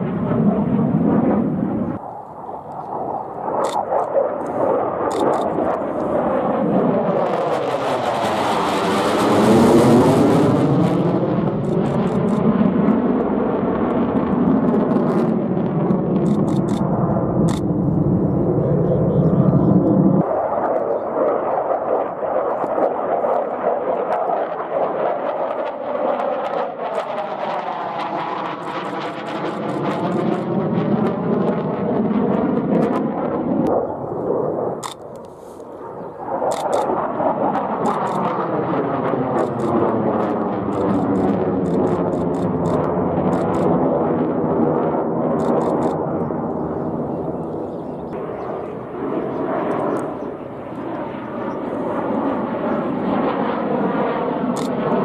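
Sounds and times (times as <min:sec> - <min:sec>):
jet engine roaring past: 0:00.0 - 0:55.0.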